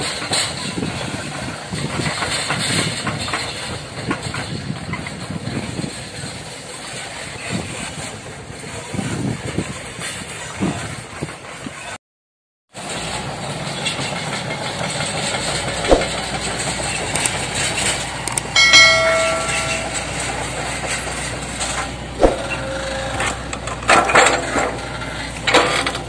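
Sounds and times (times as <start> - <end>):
excavator diesel engine running: 12.8 - 26.0
sharp knocks of wood or steel: 15.9 - 16.2, 22.2 - 22.5
short electronic chime: 18.6 - 20.3.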